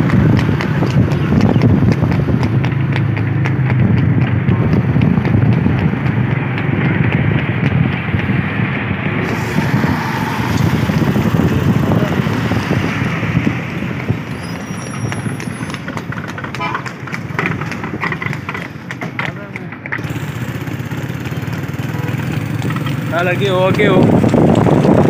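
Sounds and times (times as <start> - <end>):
horse hooves clip-clopping: 0.0 - 9.9, 10.5 - 25.0
low rumble of vehicle engines: 0.0 - 25.0.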